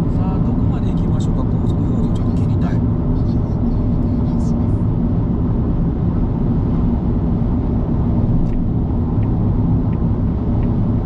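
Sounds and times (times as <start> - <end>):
tyre and road noise in car cabin: 0.0 - 11.0.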